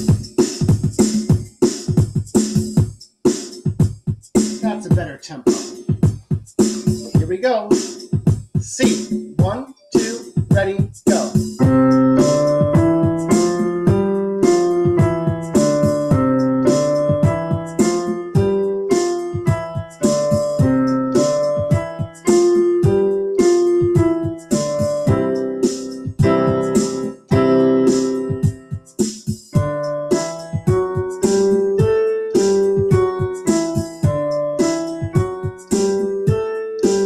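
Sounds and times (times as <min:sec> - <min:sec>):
keyboard rock drum beat: 0:00.0 - 0:37.0
keyboard piano playing scale patterns: 0:11.1 - 0:37.0.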